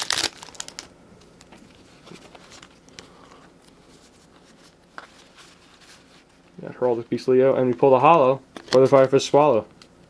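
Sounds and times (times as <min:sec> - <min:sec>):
trading cards rustling: 0:00.0 - 0:07.0.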